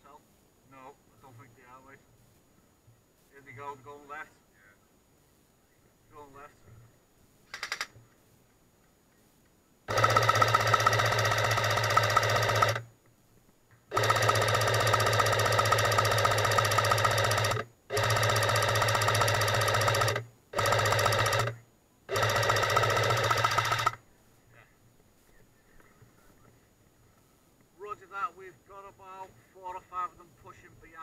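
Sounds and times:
airsoft gun firing full auto: 0:09.9 - 0:12.8, 0:13.9 - 0:24.0.

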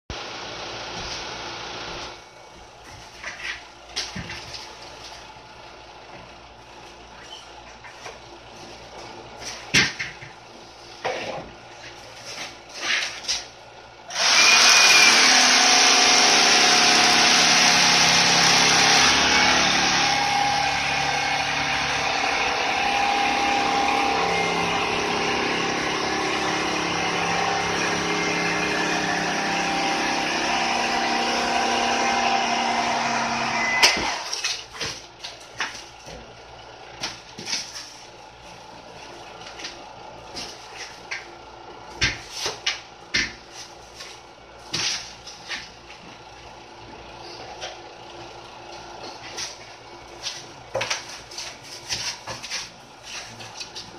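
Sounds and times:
power tool motor hum: 0:14.1 - 0:34.4.

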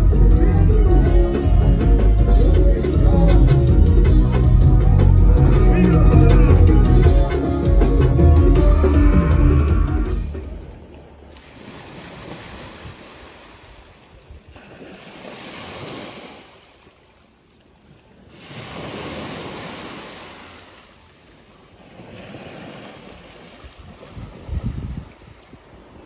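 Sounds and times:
small waves breaking on shore: 0:10.4 - 0:26.0.

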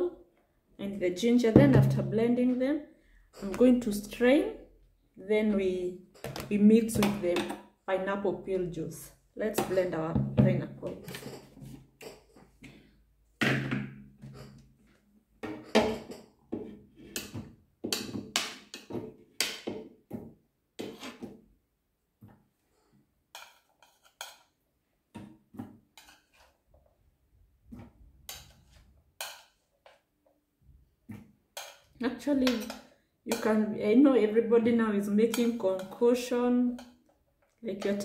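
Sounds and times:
utensil scraping and tapping plate: 0:15.4 - 0:19.7, 0:23.3 - 0:24.5, 0:26.0 - 0:26.5, 0:28.3 - 0:30.0, 0:31.6 - 0:33.6.

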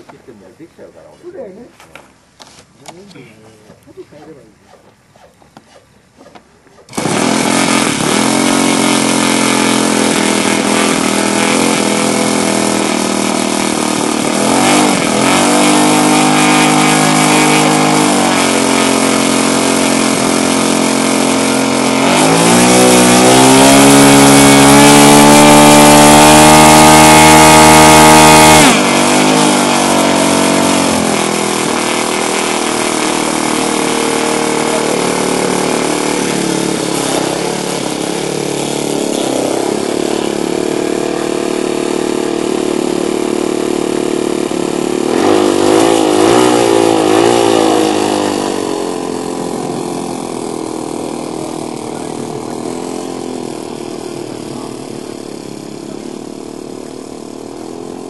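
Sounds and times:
model aircraft engine revving: 0:03.9 - 0:58.0.

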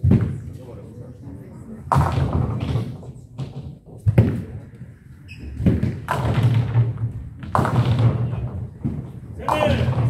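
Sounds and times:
bowling ball rolling and striking pins: 0:05.5 - 0:10.0
bowling ball landing thud: 0:05.6 - 0:10.0.

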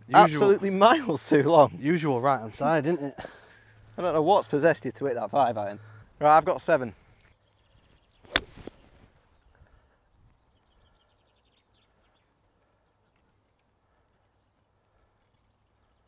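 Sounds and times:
golf club striking ball: 0:08.3 - 0:08.9.

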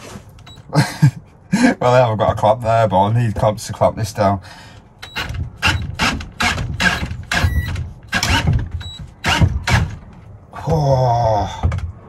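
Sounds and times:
cordless drill driving screw: 0:05.0 - 0:08.5.

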